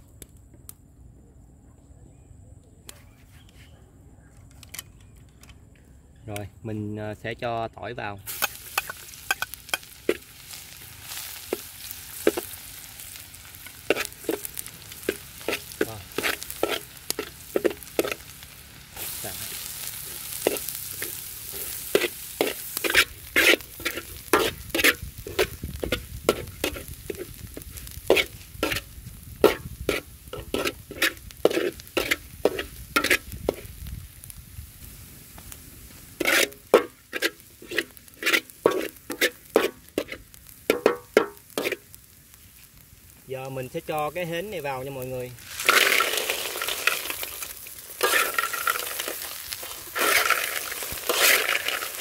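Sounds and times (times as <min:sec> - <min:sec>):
food sizzling in oil: 0:08.2 - 0:52.0
metal spatula scraping a pan: 0:08.3 - 0:33.8, 0:36.2 - 0:41.9, 0:45.6 - 0:52.0.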